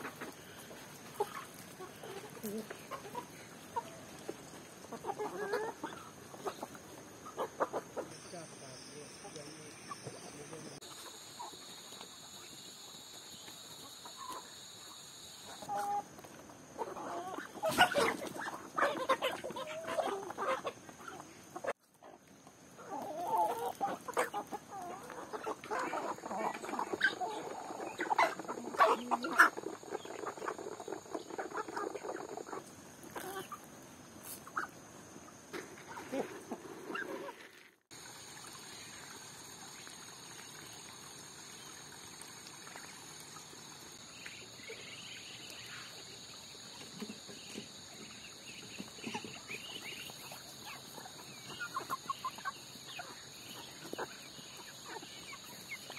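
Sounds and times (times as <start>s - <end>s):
chickens clucking: 0.0s - 37.6s, 44.0s - 55.9s
water trickling into pond: 37.9s - 55.9s.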